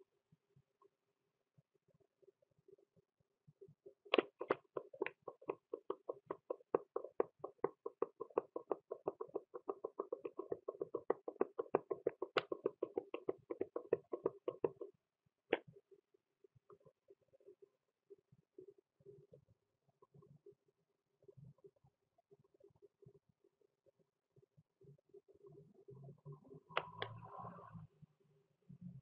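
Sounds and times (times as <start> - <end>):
computer mouse clicking: 4.1 - 14.9.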